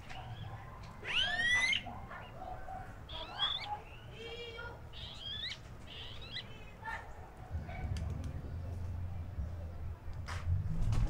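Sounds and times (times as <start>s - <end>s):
bird whistling upward calls: 1.0s - 1.9s.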